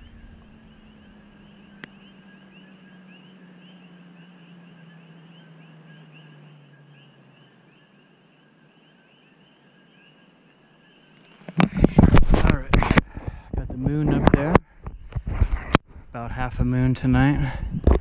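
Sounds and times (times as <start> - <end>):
low hum: 0.0 - 9.5
frogs chirping: 0.0 - 15.2.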